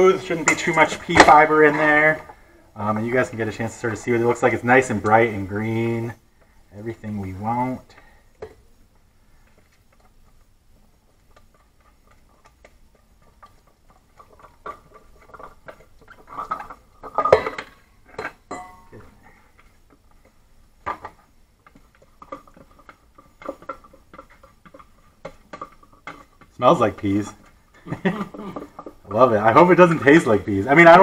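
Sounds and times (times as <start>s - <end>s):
knocks and clinks of bowls: 12.2s - 19.1s.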